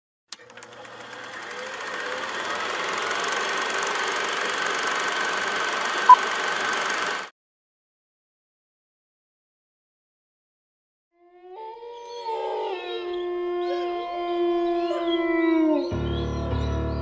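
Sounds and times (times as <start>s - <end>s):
film projector clattering: 0.3s - 7.3s.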